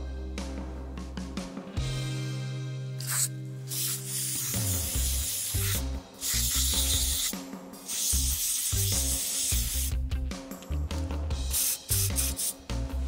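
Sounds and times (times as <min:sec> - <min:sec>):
background music: 0:00.0 - 0:13.0
aerosol spray can hissing: 0:03.0 - 0:10.0, 0:11.5 - 0:12.7.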